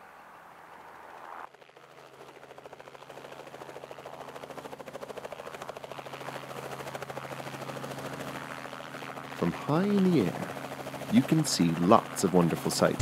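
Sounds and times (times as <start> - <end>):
helicopter rotor chop: 0.7 - 13.0
engine hum: 9.4 - 13.0.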